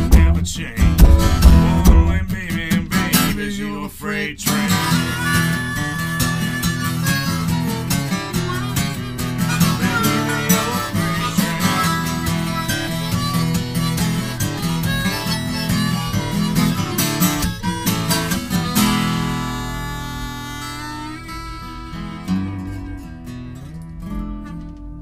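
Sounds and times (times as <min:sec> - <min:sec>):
acoustic guitar strumming chords: 0:00.0 - 0:25.0
harmonica wailing melody: 0:04.5 - 0:23.7.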